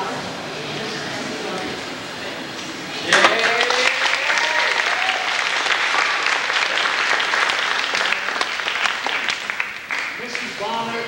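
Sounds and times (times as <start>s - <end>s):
audience applauding: 3.0s - 10.9s.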